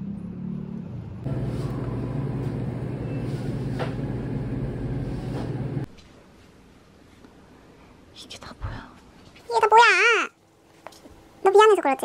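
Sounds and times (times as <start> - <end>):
low machine hum: 1.2 - 5.9.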